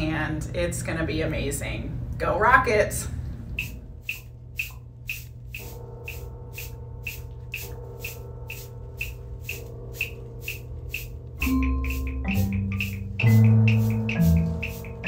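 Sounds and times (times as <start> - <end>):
low hum: 3.0 - 15.0
clock ticking: 3.6 - 15.0.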